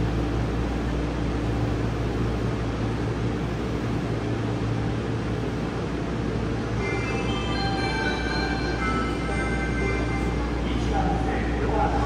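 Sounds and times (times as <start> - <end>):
subway air conditioning hum: 0.0 - 12.0
low held tones: 6.7 - 12.0.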